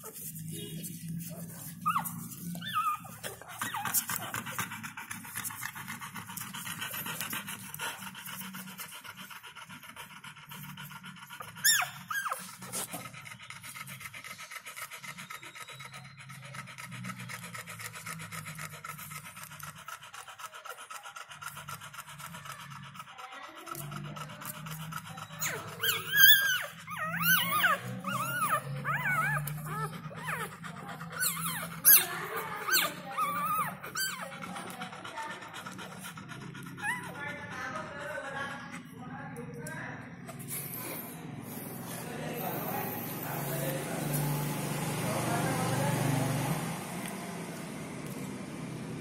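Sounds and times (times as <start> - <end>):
dog panting: 0.0 - 49.0
puppies squeaking and whimpering: 1.3 - 4.9, 11.4 - 13.6, 23.7 - 37.7.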